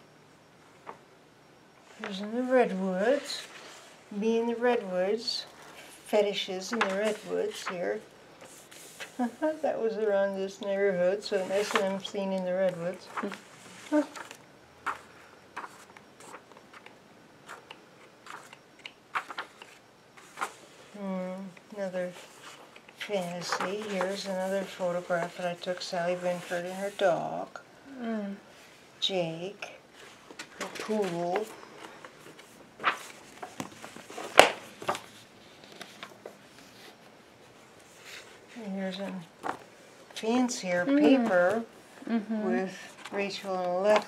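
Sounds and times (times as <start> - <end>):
magazine pages rustling: 5.4 - 9.4, 11.2 - 20.7, 22.1 - 25.9, 30.0 - 37.0, 37.8 - 39.7.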